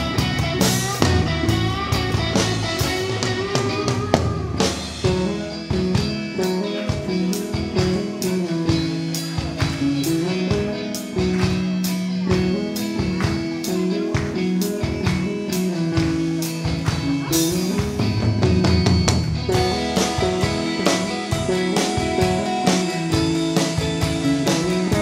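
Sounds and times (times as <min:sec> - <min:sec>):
drum kit beat: 0:00.0 - 0:25.0
electric guitars: 0:00.0 - 0:25.0.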